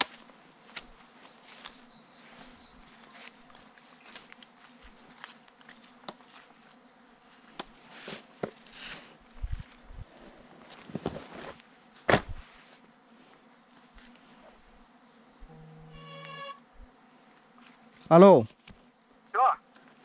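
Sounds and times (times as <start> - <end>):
crickets chirping: 0.0 - 20.0
phone buzzing tone: 15.5 - 16.7.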